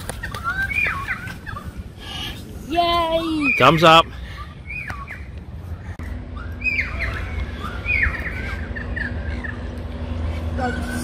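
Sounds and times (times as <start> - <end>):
birds squawking: 0.0 - 11.0
steady low rumble: 0.0 - 11.0.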